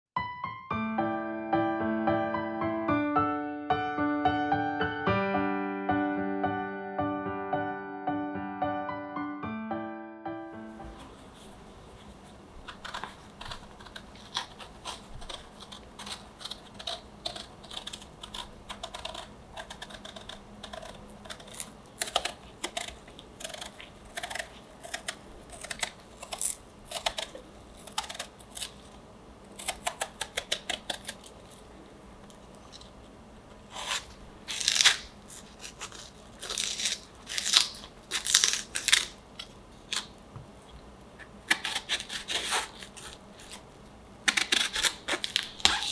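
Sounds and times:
knife peeling fruit skin: 0:12.6 - 0:31.6, 0:33.6 - 0:40.2, 0:41.2 - 0:45.9.

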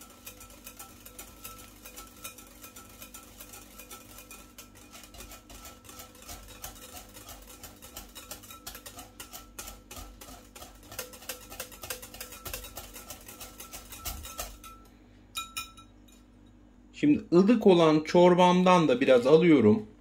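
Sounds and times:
whisk clicking against glass bowl: 0:00.0 - 0:15.8.

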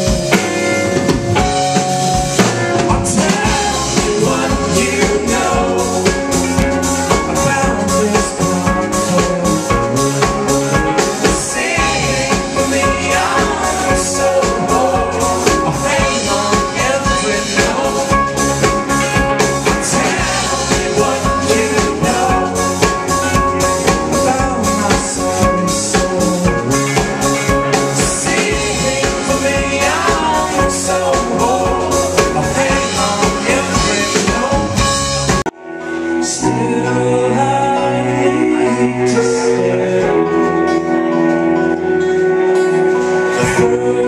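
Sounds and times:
drum kit beat: 0:00.0 - 0:35.6
banjo song: 0:00.0 - 0:44.0
rock band playing: 0:00.0 - 0:44.0.

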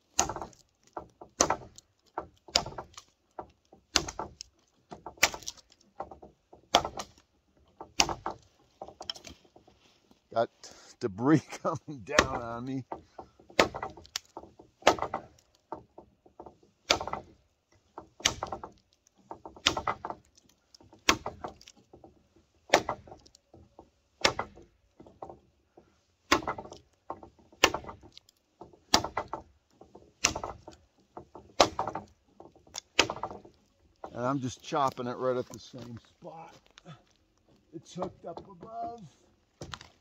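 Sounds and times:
machete chopping wood: 0:00.1 - 0:03.1, 0:03.9 - 0:05.7, 0:06.7 - 0:07.2, 0:07.9 - 0:08.5, 0:12.1 - 0:12.7, 0:13.5 - 0:15.5, 0:16.8 - 0:17.4, 0:18.2 - 0:18.8, 0:19.6 - 0:20.3, 0:21.0 - 0:21.7, 0:22.7 - 0:23.3, 0:24.2 - 0:24.7, 0:26.3 - 0:26.9, 0:27.6 - 0:29.5, 0:30.2 - 0:30.8, 0:31.4 - 0:32.1, 0:32.7 - 0:33.5, 0:39.6 - 0:40.0
faint knocks: 0:12.0 - 0:40.0.

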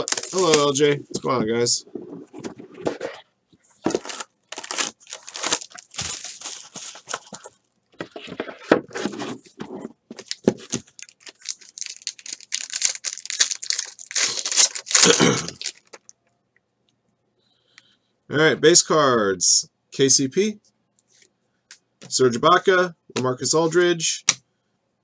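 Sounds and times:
foil pack being torn open: 0:00.0 - 0:00.8, 0:04.0 - 0:07.1, 0:10.2 - 0:16.0
foil wrappers crinkling: 0:00.0 - 0:00.9, 0:03.9 - 0:07.6, 0:10.2 - 0:16.1.

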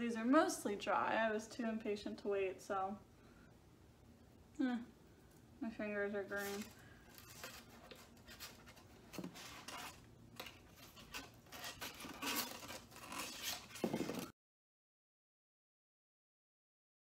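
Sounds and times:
styrofoam boards scraping: 0:06.3 - 0:14.3.

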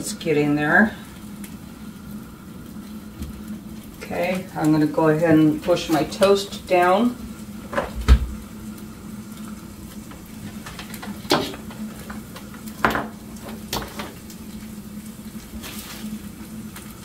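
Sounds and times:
egg sizzling in a skillet: 0:00.0 - 0:17.0.

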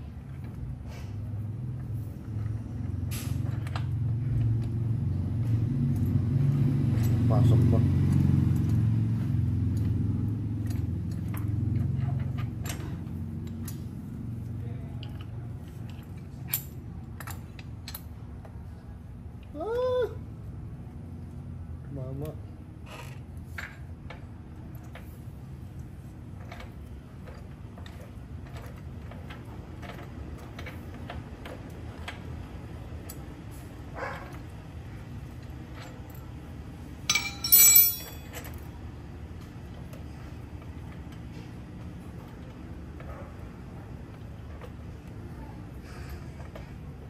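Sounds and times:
steady low hum: 0:22.4 - 0:47.0
metal socket clicks and clinks: 0:37.1 - 0:38.2.

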